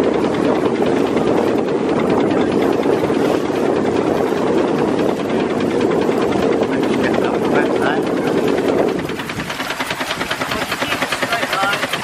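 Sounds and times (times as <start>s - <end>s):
water rushing past hull: 0.0s - 12.0s
steam launch engine: 9.1s - 12.0s.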